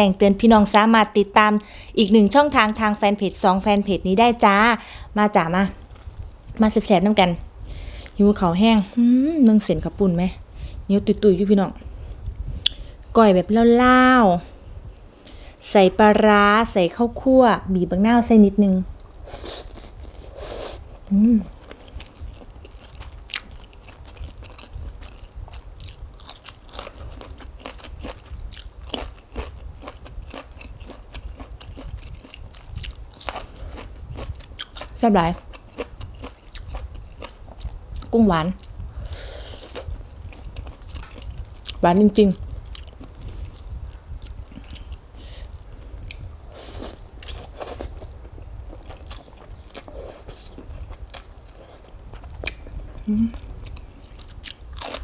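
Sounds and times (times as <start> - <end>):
chewing with crisp crunches: 19.0 - 55.0.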